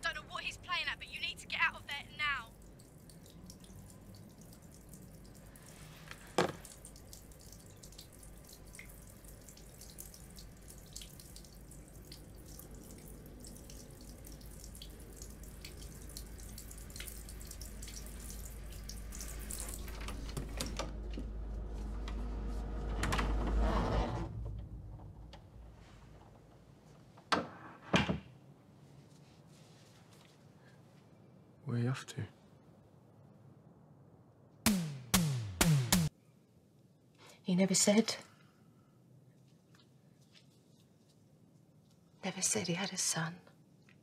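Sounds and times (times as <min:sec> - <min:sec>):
water rushing from a tap: 0:02.5 - 0:20.6.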